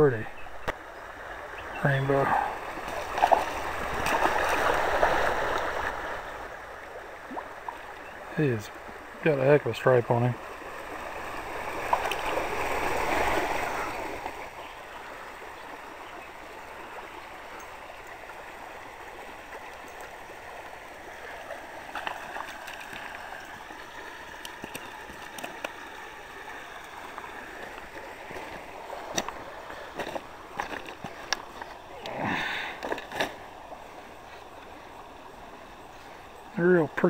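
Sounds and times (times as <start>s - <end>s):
stream water gurgling over rocks: 0.1s - 37.0s
fish splashing water: 2.4s - 6.3s, 10.7s - 14.4s, 21.3s - 33.4s.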